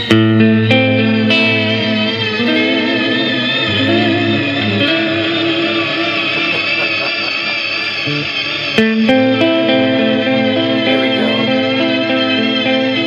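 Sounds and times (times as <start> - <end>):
electric guitar with shimmering reverb: 0.0 - 13.0.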